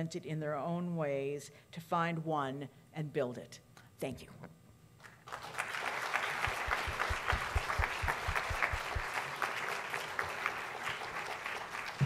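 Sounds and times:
audience applauding: 5.2 - 12.0
low thumps: 6.5 - 9.1.

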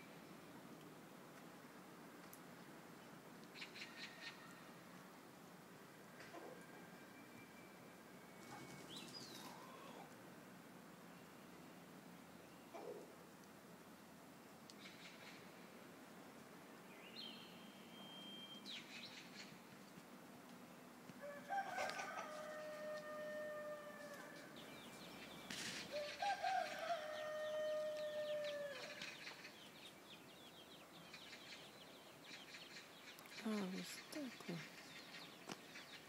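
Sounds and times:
rooster crowing: 21.2 - 24.6, 25.9 - 29.0.

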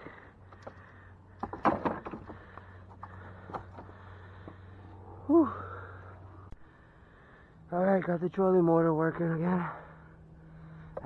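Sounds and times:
steady low hum: 0.0 - 11.0
man sighing: 5.2 - 6.2.

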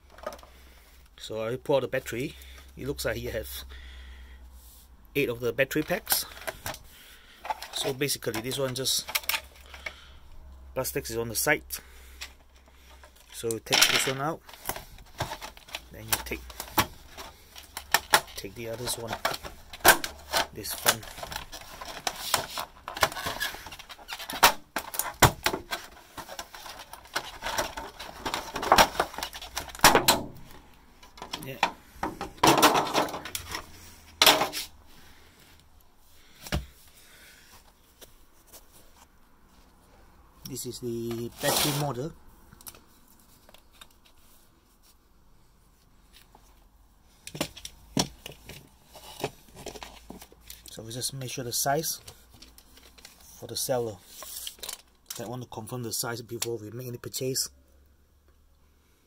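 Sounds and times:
plastic shelves crackling and knocking: 0.0 - 0.6, 12.8 - 34.7, 47.2 - 51.0.

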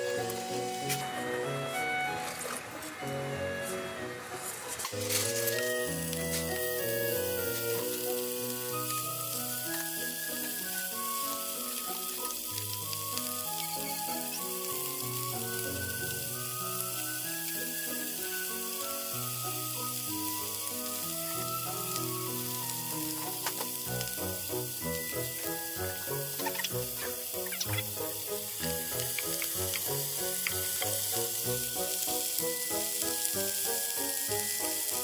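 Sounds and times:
chicken sizzling in oil: 0.0 - 35.0
soft background music: 0.0 - 35.0
chopsticks clicking on pan: 23.1 - 24.2, 28.9 - 31.0.

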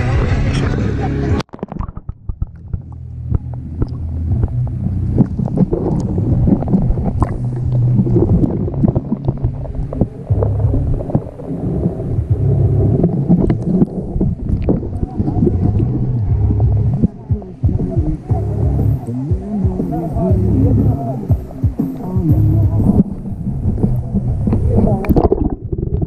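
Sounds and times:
underwater water sloshing: 0.2 - 26.0
small clicks underwater: 1.4 - 11.5, 13.0 - 16.2, 23.8 - 26.0.

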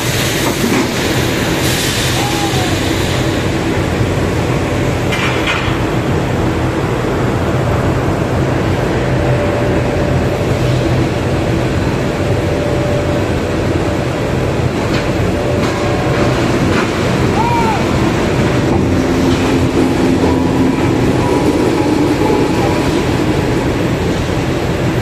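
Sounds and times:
low machine hum: 0.0 - 25.0
rolling mill machine din: 0.0 - 25.0.

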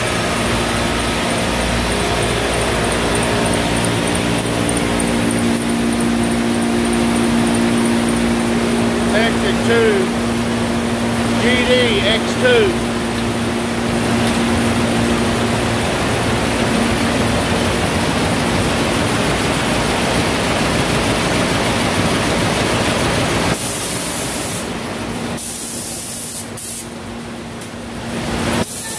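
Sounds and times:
low hum: 0.0 - 19.8
machinery mechanical rush: 0.0 - 23.6.

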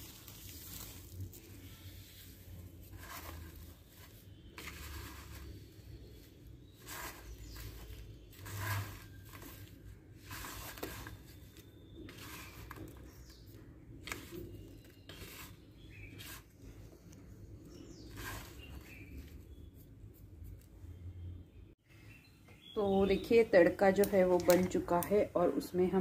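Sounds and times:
hand rustling and scraping on plate: 0.0 - 13.2.

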